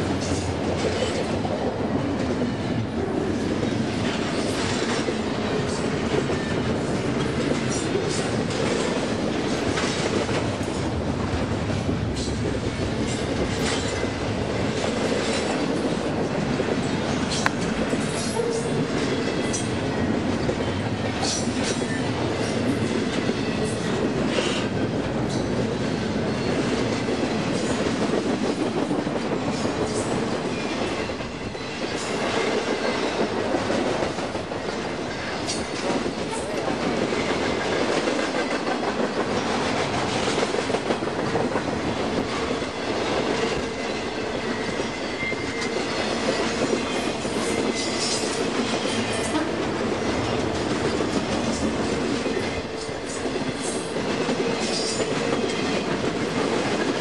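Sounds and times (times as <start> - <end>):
freight train wheels rumbling: 0.0 - 57.0
wheels clicking on rail joints: 11.6 - 57.0.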